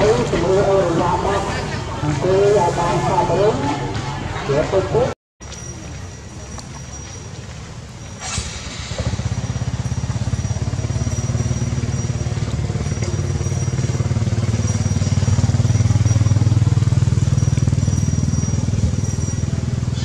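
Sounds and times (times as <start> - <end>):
motorcycle engine low revs: 7.7 - 20.0.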